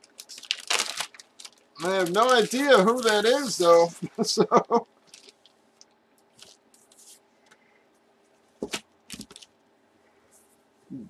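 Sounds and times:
packaging crinkling: 0.0s - 4.0s, 5.0s - 7.2s, 8.6s - 9.6s.

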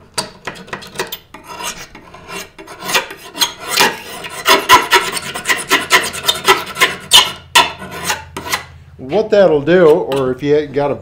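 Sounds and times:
razor blade scraping steel bar: 0.4s - 8.7s.

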